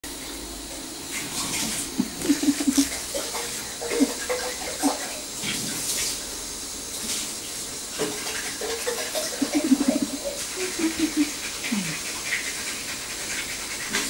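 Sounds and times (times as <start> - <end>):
cat licking its fur: 1.2 - 3.0, 9.2 - 14.0.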